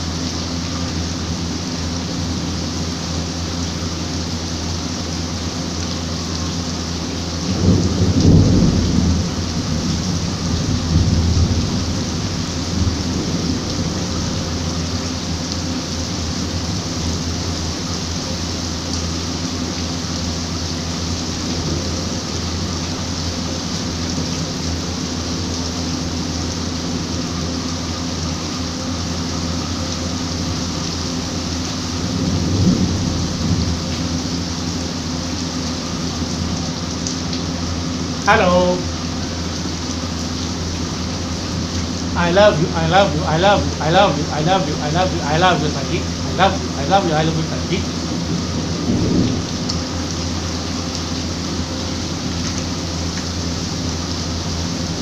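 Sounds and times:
steady rain hissing: 0.0s - 55.0s
thunder rumbling: 7.5s - 14.7s, 31.9s - 34.5s, 41.2s - 50.9s.

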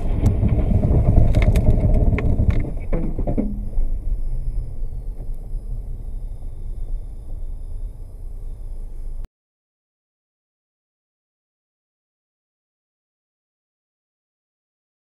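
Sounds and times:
sharp knocks and clatters: 0.0s - 3.8s
car road and engine rumble: 0.0s - 9.3s.

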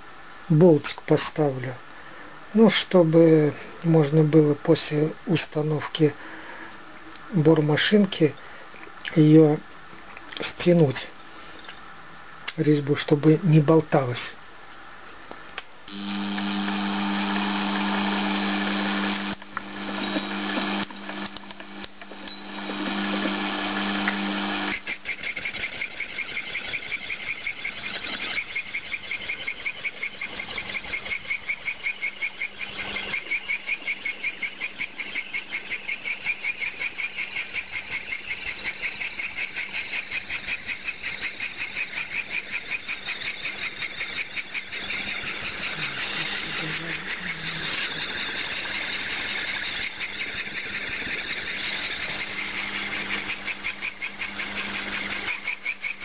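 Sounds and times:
saw cutting metal: 15.9s - 24.9s.

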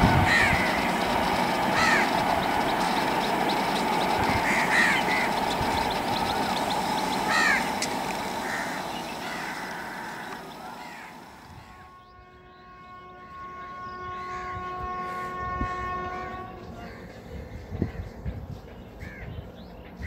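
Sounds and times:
train rumble: 0.0s - 20.0s
crows cawing: 0.2s - 11.5s, 19.0s - 19.3s.

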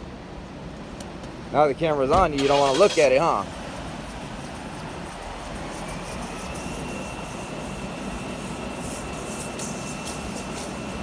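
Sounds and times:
faint high whine: 4.4s - 11.0s.

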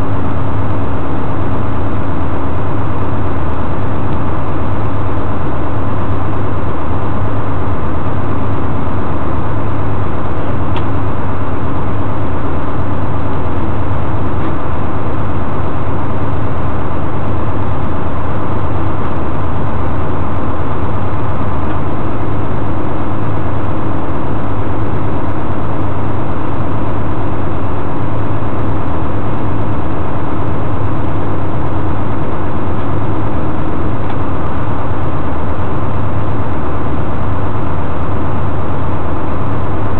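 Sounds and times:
truck engine idling: 0.0s - 39.9s.

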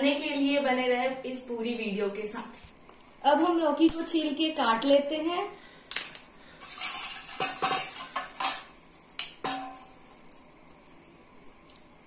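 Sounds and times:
metal utensils clinking on steel bowl: 6.0s - 10.3s.

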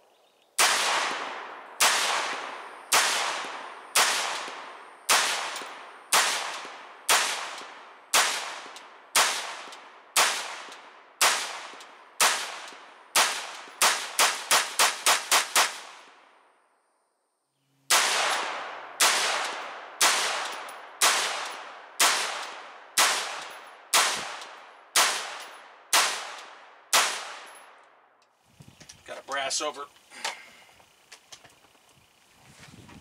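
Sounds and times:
rifle shots with long echo: 0.6s - 16.6s, 17.9s - 28.1s.

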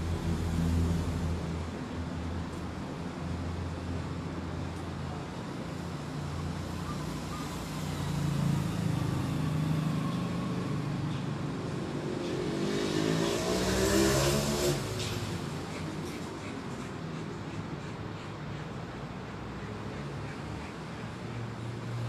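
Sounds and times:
vehicle engine passing: 6.5s - 16.3s.

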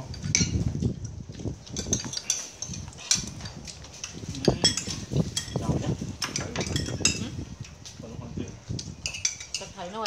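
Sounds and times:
cutlery clinking on ceramic plates: 1.7s - 7.4s, 9.0s - 10.0s.

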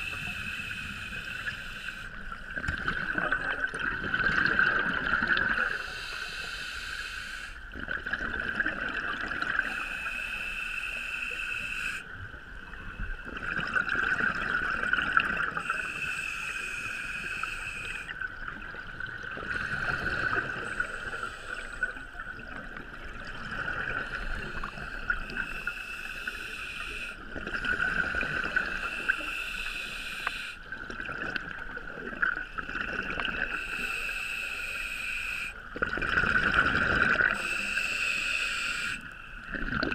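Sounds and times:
regulator hiss: 0.0s - 2.3s, 5.6s - 7.6s, 9.6s - 12.0s, 15.6s - 18.1s, 19.5s - 22.1s, 23.9s - 27.2s, 28.5s - 30.7s, 33.5s - 35.7s, 37.3s - 39.4s
diver bubbles gurgling underwater: 2.4s - 5.8s, 7.7s - 9.8s, 12.6s - 15.8s, 17.9s - 25.5s, 30.7s - 33.6s, 35.7s - 37.5s, 39.4s - 39.9s.

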